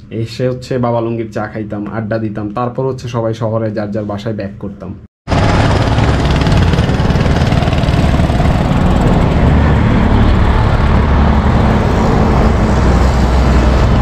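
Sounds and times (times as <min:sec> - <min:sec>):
road traffic rumble: 0:05.3 - 0:14.0.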